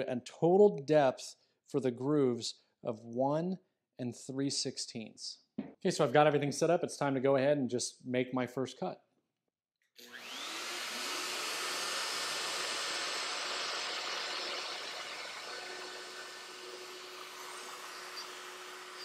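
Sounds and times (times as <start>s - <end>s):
router whine cutting wood: 10.0s - 19.0s.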